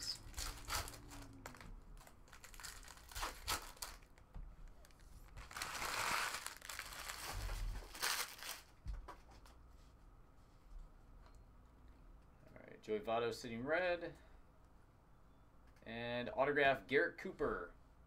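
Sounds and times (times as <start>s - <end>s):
foil wrapper crinkling and tearing: 0.0s - 8.8s.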